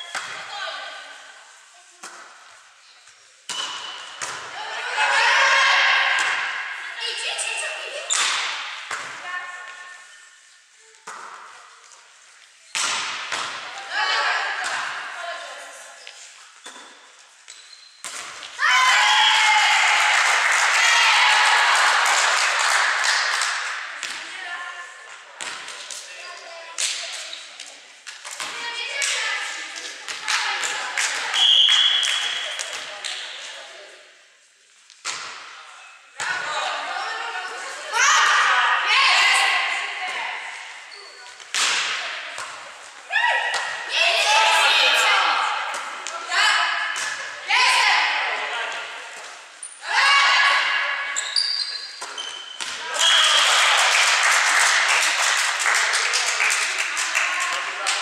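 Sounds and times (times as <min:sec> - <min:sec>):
ball strikes: 0:03.5 - 0:04.5, 0:12.7 - 0:13.7
volleyball being struck: 0:03.5 - 0:04.5, 0:12.7 - 0:13.7
sneaker squeaks: 0:07.4 - 0:08.4, 0:15.9 - 0:18.3, 0:40.9 - 0:41.6, 0:51.0 - 0:53.4
team cheering and clapping: 0:18.5 - 0:24.5, 0:28.5 - 0:33.2, 0:52.7 - 0:58.0
referee's whistle: 0:31.4 - 0:32.6, 0:53.0 - 0:53.5.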